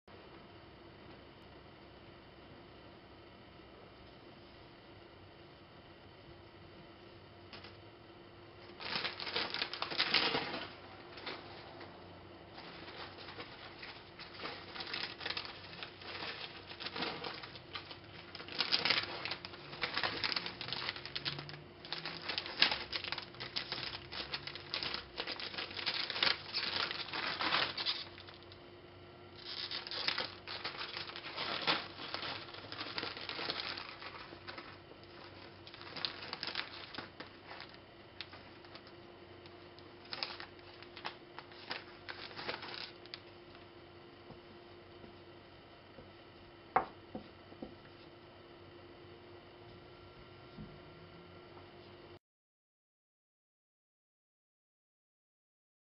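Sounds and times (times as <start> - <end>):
foil chip bag crinkling: 8.6 - 11.6, 12.5 - 28.6, 29.4 - 43.6.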